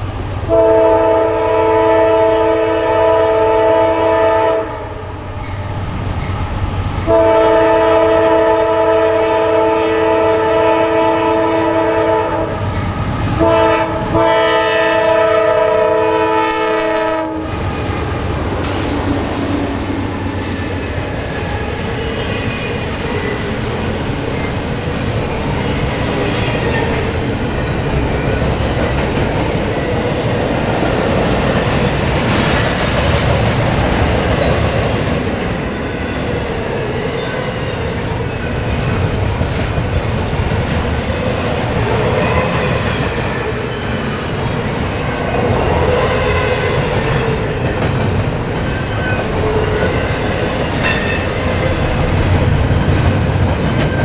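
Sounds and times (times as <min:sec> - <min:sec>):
train wheels rumbling on rails: 0:00.0 - 0:54.0
clickety-clack over rail joints: 0:17.8 - 0:37.0, 0:37.8 - 0:54.0.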